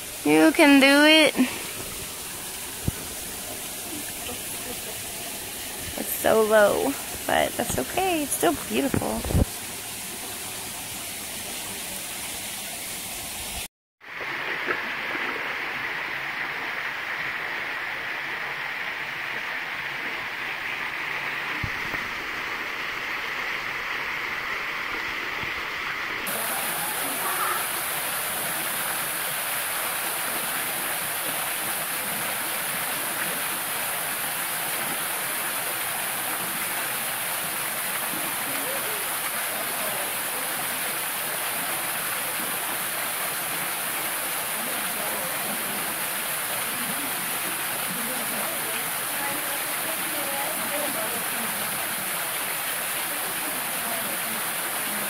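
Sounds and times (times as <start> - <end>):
creek running among boulders: 0.0 - 55.0
waterfall pouring into pool: 0.0 - 55.0.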